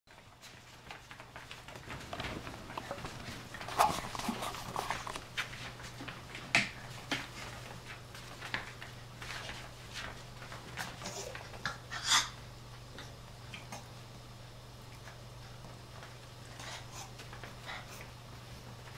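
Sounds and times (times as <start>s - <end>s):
paws scuffling on rug: 0.1s - 11.9s
dog play noises: 0.2s - 18.9s.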